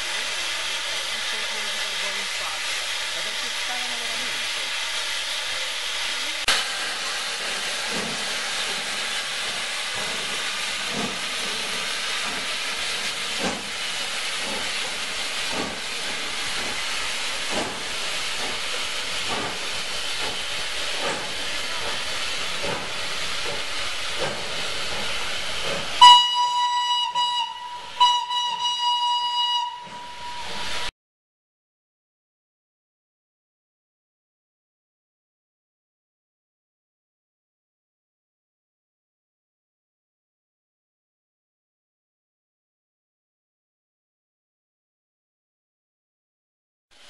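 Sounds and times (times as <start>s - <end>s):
steam hissing: 0.0s - 30.9s
steam locomotive beats: 0.0s - 30.9s
steam whistle blasts: 26.0s - 30.9s.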